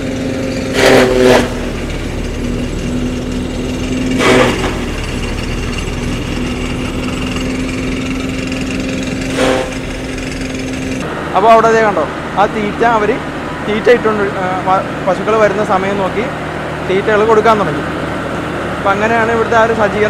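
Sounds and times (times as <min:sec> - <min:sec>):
chaff cutter chopping stalks: 0:00.0 - 0:11.1
tractor engine humming: 0:00.0 - 0:20.0.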